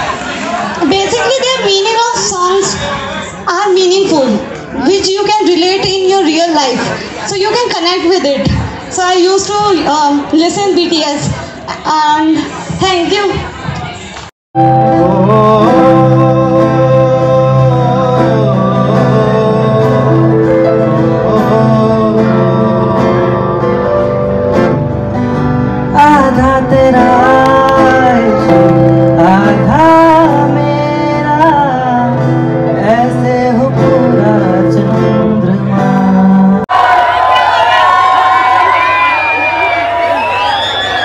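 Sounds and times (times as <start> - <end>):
acoustic guitar: 14.6 - 36.6
keyboard: 14.6 - 36.6
people singing into microphones: 14.7 - 23.8, 25.9 - 36.6.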